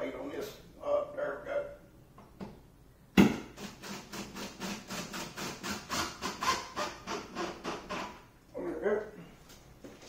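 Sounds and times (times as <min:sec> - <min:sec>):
sharp knock: 0:03.2 - 0:03.5.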